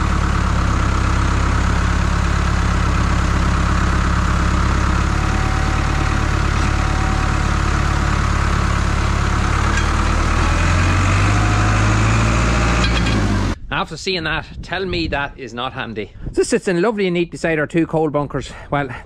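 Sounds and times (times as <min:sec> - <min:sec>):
tractor diesel engine running: 0:00.0 - 0:13.6.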